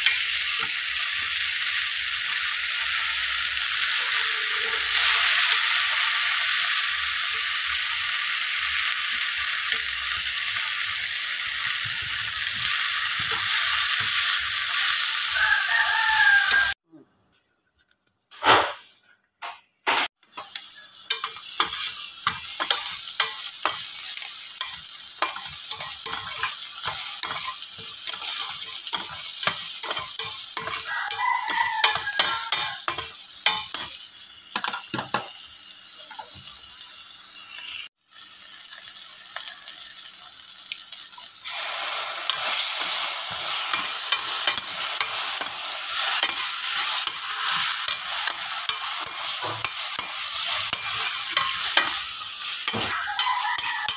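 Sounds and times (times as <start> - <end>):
onion sizzling in oil: 0.0 - 16.8, 20.2 - 53.9
spatula scraping a pan: 20.4 - 33.9, 41.4 - 53.9.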